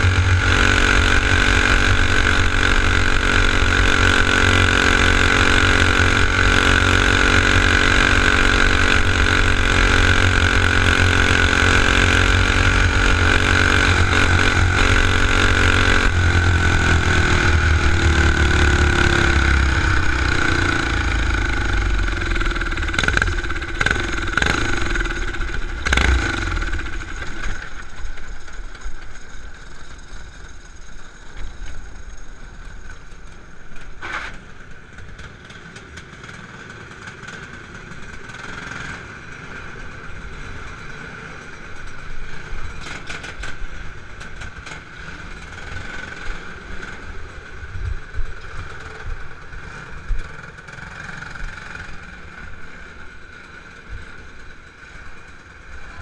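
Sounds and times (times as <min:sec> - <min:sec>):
engine knock: 0:00.0 - 0:33.3
kart engine idling: 0:00.0 - 0:56.0.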